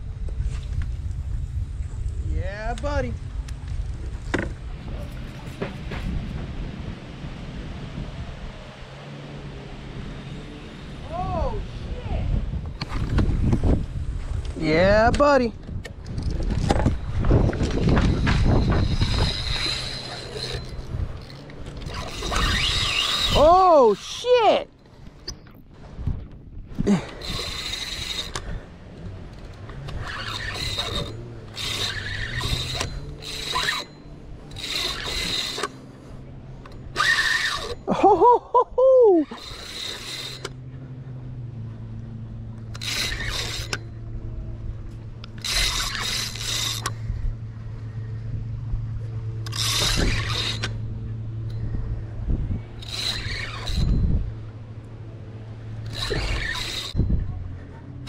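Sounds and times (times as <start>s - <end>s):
steady low hum: 15.3s - 58.0s
fishing reel gears whirring: 16.1s - 25.6s, 26.8s - 38.2s, 38.9s - 58.0s.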